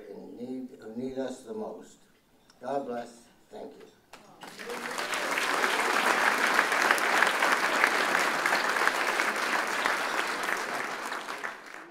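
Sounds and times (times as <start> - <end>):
audience applauding: 4.4 - 11.9.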